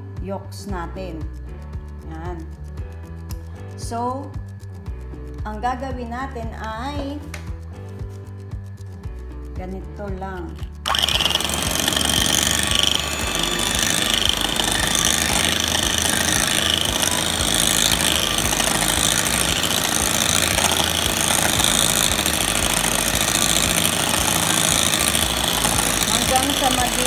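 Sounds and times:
electric hand mixer whipping: 10.8 - 27.0.

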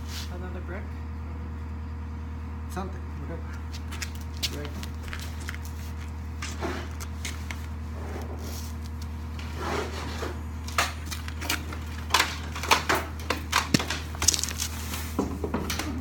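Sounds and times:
steady low hum: 0.0 - 16.0
wooden board knocking and clattering: 12.1 - 16.0.

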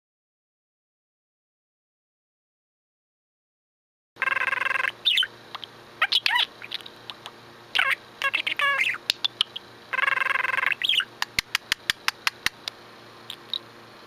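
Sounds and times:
budgerigar chirping: 4.2 - 7.2, 7.8 - 11.1
bird clicks: 11.2 - 12.8.

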